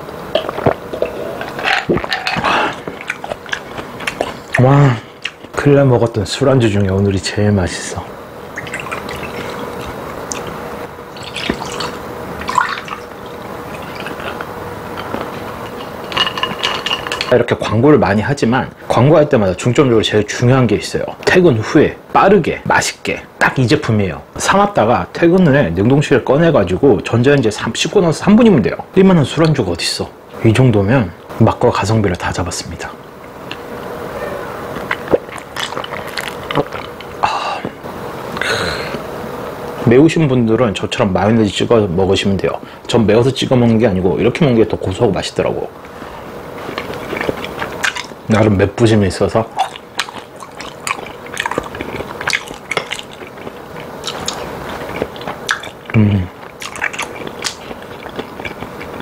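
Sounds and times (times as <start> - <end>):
chewing: 0.4 - 4.6, 13.7 - 17.2, 34.8 - 37.2, 46.6 - 48.2, 49.5 - 59.0
breathy exhales: 2.4 - 2.8, 38.4 - 39.1
wet mouth clicks: 49.6 - 59.0.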